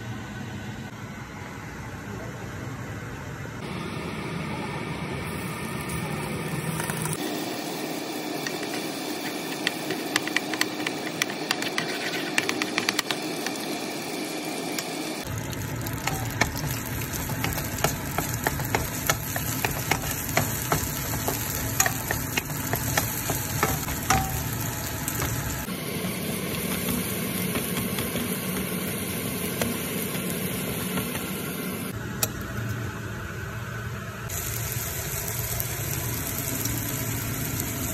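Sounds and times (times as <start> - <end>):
garlic sizzling in a frying pan: 5.2 - 31.9, 34.3 - 37.9
spatula scraping a pan: 11.1 - 13.1.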